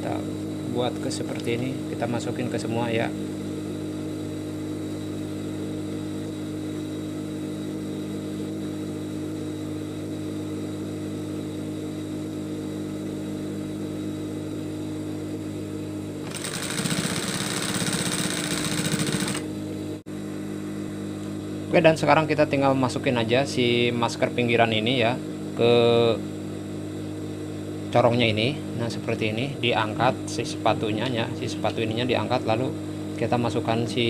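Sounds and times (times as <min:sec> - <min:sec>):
sewing machine motor humming: 0:16.2 - 0:19.5
sewing machine stitching: 0:16.2 - 0:19.5.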